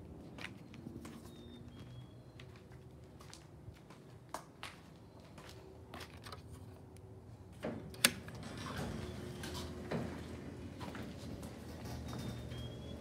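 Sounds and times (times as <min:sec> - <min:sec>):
garage door opener hum and rattle: 0:07.5 - 0:13.0.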